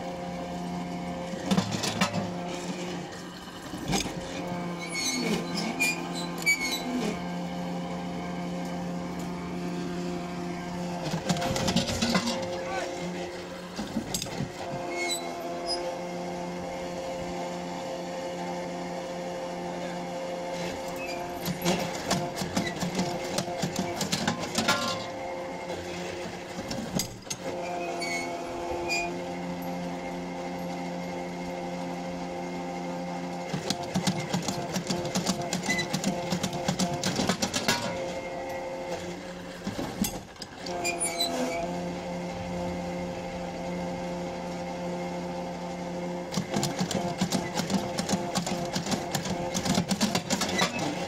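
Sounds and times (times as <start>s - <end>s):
winch motor humming: 0.0s - 51.0s
clanking and rattling: 11.1s - 12.6s.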